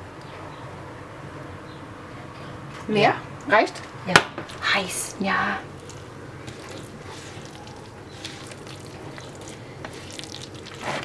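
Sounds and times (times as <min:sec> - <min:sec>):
wet squelches of hand kneading: 0:05.7 - 0:11.0.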